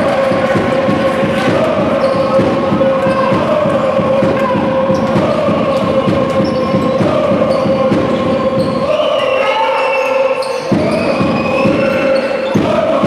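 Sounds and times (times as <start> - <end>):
crowd voices din: 0.0 - 13.0
sneaker squeaks: 2.0 - 2.4, 6.4 - 12.8.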